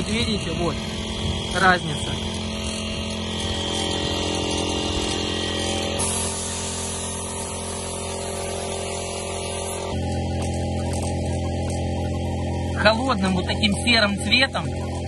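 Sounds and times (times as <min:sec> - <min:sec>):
paint spray gun hissing: 0:00.0 - 0:11.9
mechanical hum: 0:00.0 - 0:15.0.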